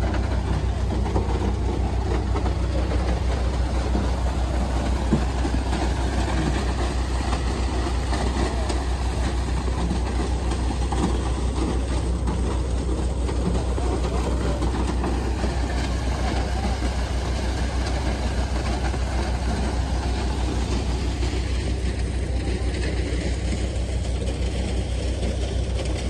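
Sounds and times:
concrete pouring down chute: 0:00.0 - 0:26.0
diesel engine throbbing: 0:00.0 - 0:26.0.

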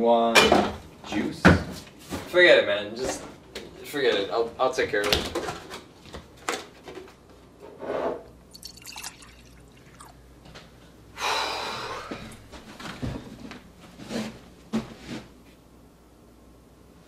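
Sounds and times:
water splashing: 0:08.5 - 0:10.2.

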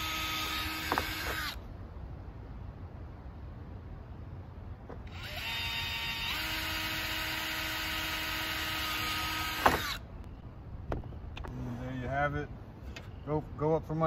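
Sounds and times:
cordless drill whining: 0:00.0 - 0:01.6, 0:05.0 - 0:10.0.

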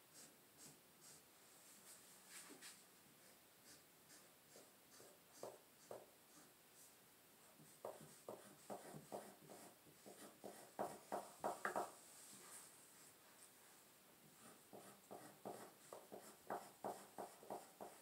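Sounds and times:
pencil scratching on paper: 0:00.1 - 0:01.2, 0:03.2 - 0:11.9, 0:14.2 - 0:18.0.

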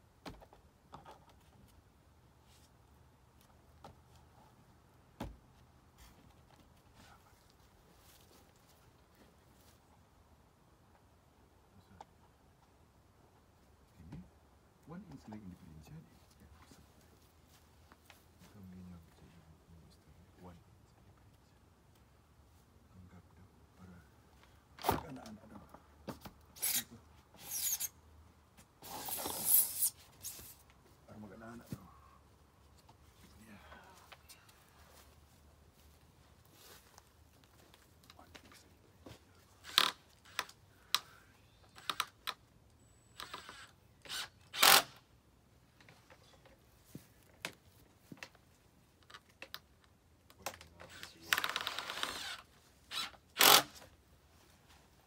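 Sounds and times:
skirting scraping and rasping: 0:26.6 - 0:27.9.

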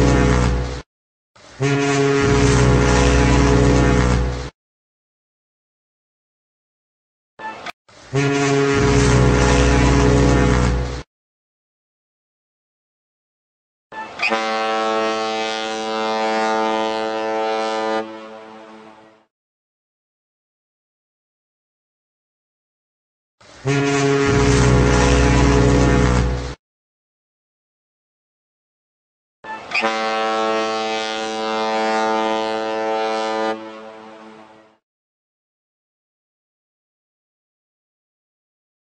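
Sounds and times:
boat horn blast: 0:00.0 - 0:00.8, 0:01.6 - 0:04.5, 0:07.4 - 0:11.1, 0:13.9 - 0:19.3, 0:23.5 - 0:26.6, 0:29.4 - 0:34.8.

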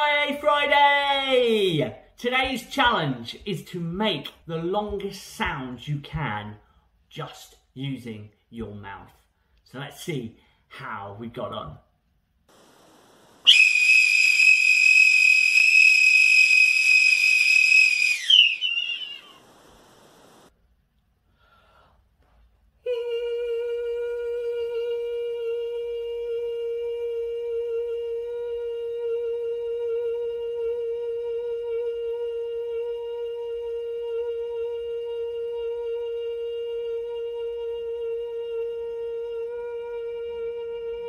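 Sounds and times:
loud finger whistle: 0:13.5 - 0:19.4
man humming a long note: 0:22.8 - 0:41.0.

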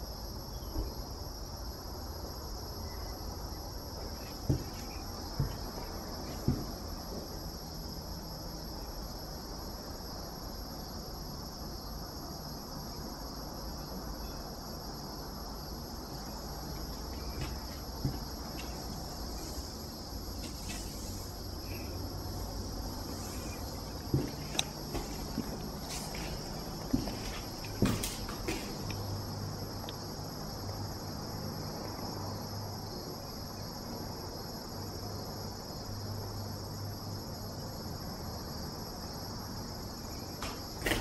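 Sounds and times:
crickets chirping: 0:00.0 - 0:41.0
dull thumps: 0:04.1 - 0:07.3, 0:16.2 - 0:29.1.

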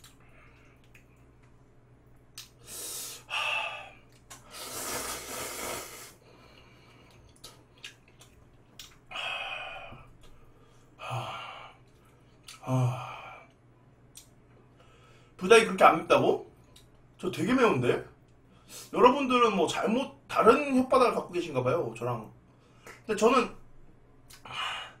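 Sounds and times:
man breathing hard: 0:02.6 - 0:07.2, 0:09.1 - 0:11.8, 0:24.4 - 0:25.0.

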